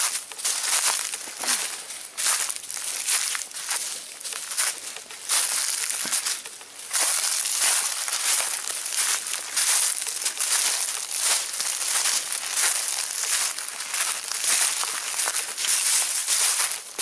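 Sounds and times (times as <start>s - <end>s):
footsteps crunching through dry leaves: 0.0s - 17.0s.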